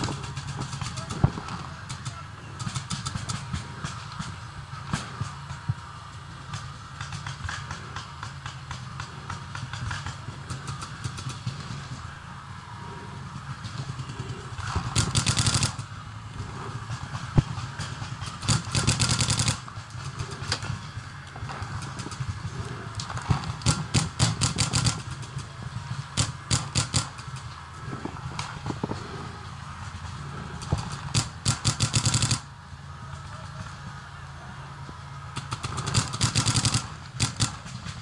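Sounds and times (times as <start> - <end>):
paintball markers firing rapidly: 0.0 - 5.4, 13.8 - 15.9, 16.6 - 20.7, 21.5 - 25.5, 26.1 - 27.5, 30.6 - 32.5, 35.4 - 38.0.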